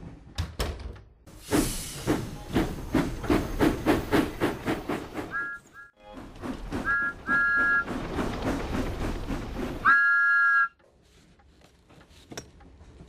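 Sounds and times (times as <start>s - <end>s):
steam locomotive chuffing: 1.3s - 10.7s
two-note train whistle: 5.3s - 6.0s, 6.8s - 7.8s, 9.8s - 10.8s.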